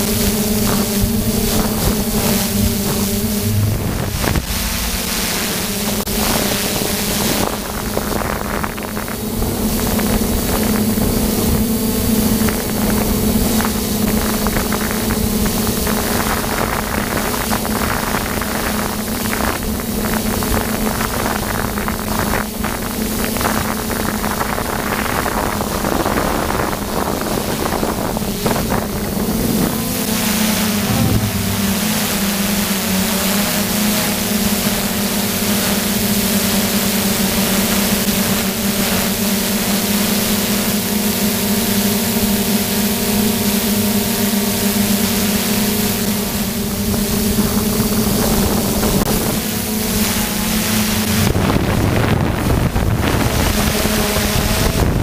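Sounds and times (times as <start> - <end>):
wind on microphone: 0.0 - 40.7, 45.0 - 55.0
drone propellers droning: 0.0 - 55.0.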